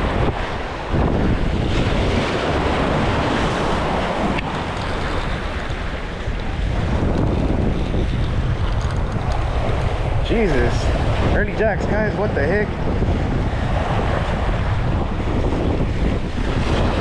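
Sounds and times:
waves washing against rocks: 0.0 - 17.0
wind buffeting microphone: 0.0 - 17.0.

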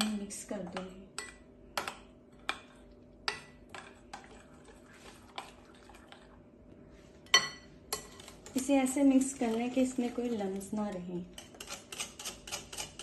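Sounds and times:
faint hum: 0.0 - 11.5.

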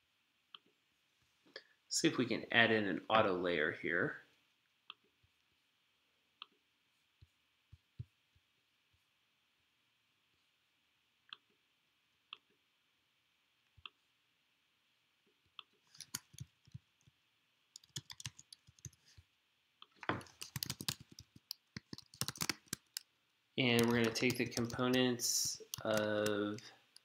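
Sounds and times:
typing on computer keyboard: 15.9 - 16.8, 17.8 - 19.0, 20.1 - 23.0, 23.7 - 27.0.

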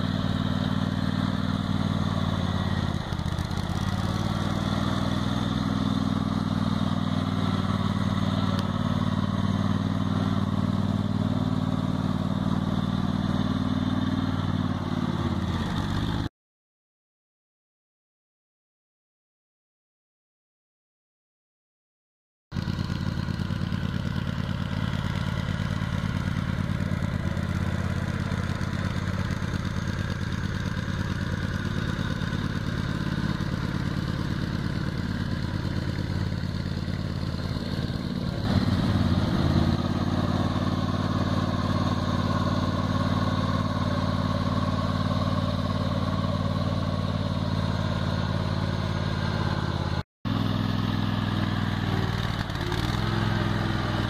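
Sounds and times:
lawn tractor engine running: 0.0 - 16.3, 22.6 - 54.0.

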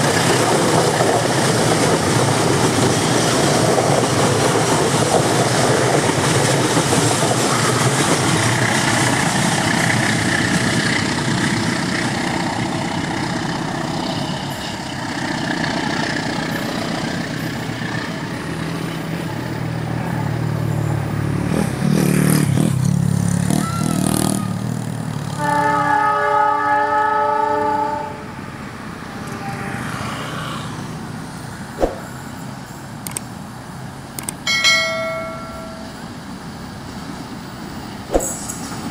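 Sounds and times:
train wheels rumbling on rails: 0.0 - 26.1, 30.8 - 38.9
train horn: 25.3 - 28.3, 29.3 - 30.1.

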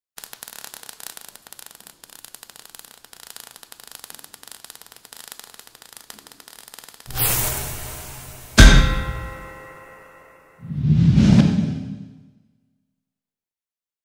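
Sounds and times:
sparks crackling and hissing: 0.2 - 9.9.

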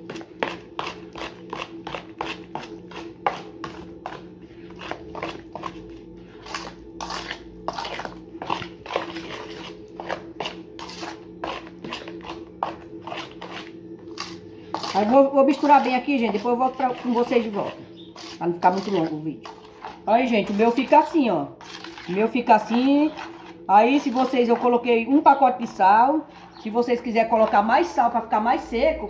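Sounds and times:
spoon stirring paste in metal bowl: 0.0 - 28.2
steady low hum: 0.0 - 29.0.

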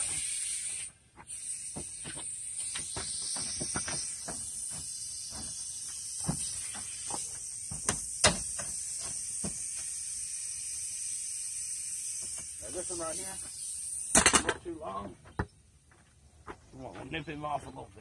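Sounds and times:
steady high hiss: 0.0 - 15.0
nail gun firing: 7.8 - 8.7, 14.1 - 14.6.

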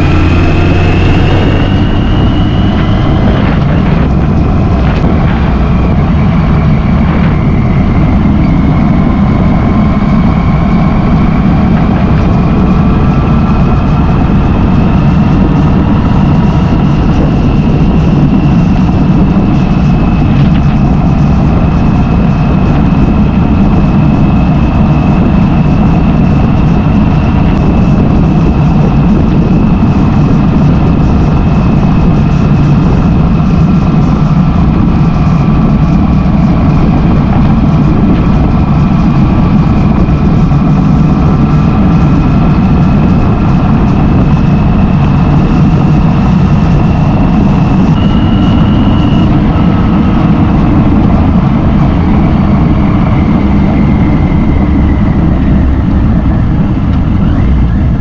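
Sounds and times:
high engine whine: 0.0 - 58.0
motorcycle engine rumble: 0.0 - 58.0.

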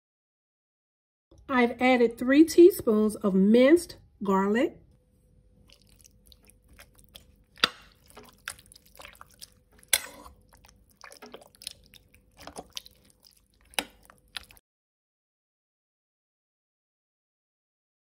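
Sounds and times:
spoon stirring thick sauce: 5.6 - 14.6.

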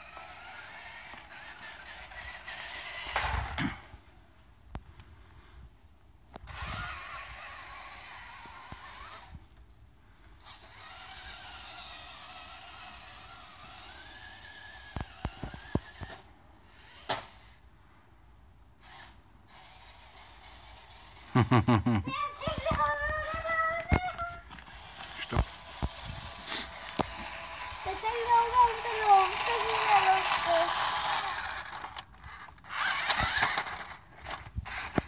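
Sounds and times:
small electric motor whining: 0.0 - 4.0, 6.3 - 9.6, 10.2 - 17.6, 18.8 - 35.0
sharp clicks: 31.7 - 35.0.

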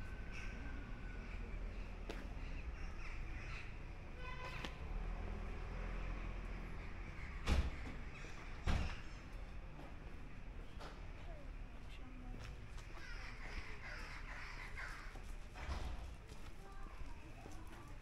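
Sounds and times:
crow cawing: 2.6 - 3.9, 12.9 - 15.3.

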